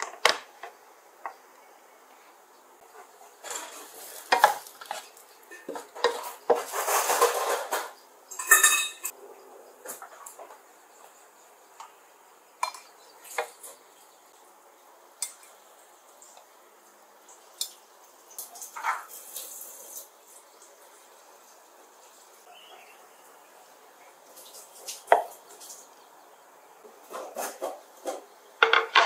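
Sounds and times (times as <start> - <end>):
dishes and cutlery clattering: 3.4 - 9.2, 18.6 - 19.2, 27.1 - 29.0.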